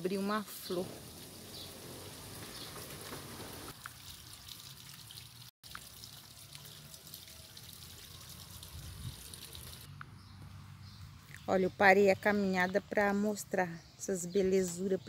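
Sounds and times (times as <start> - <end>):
drizzle falling on foliage: 1.0 - 9.9.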